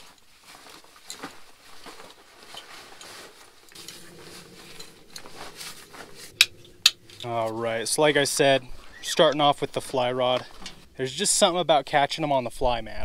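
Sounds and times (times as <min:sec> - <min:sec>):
wader fabric rustling: 0:00.0 - 0:06.4.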